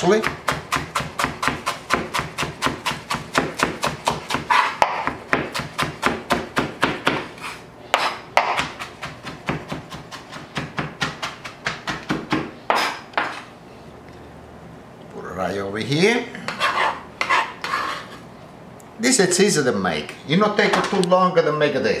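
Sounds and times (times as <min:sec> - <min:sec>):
knife chopping on plastic board: 0:00.0 - 0:07.3, 0:07.9 - 0:13.4
knife scraping board: 0:04.1 - 0:05.1, 0:07.1 - 0:09.1, 0:16.4 - 0:18.2.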